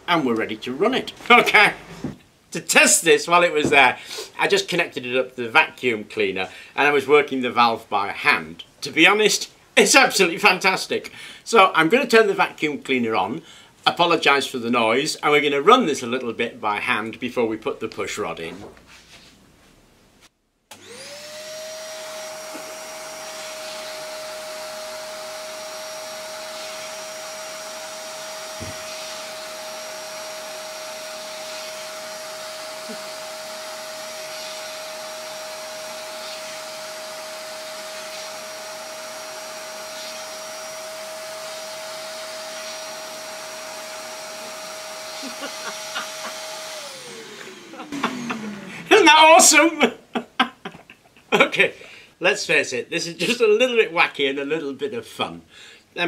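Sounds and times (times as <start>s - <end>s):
vacuum cleaner motor whine: 20.7s - 48.9s.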